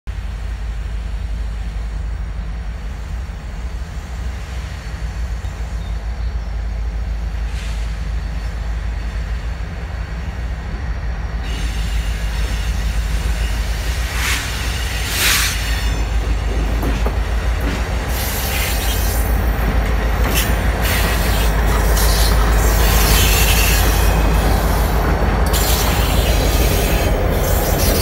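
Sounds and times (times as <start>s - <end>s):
diesel locomotive engine rumble: 0.1s - 28.0s.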